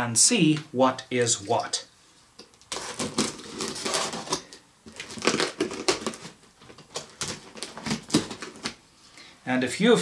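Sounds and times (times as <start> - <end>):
cardboard box being opened: 2.7 - 8.7.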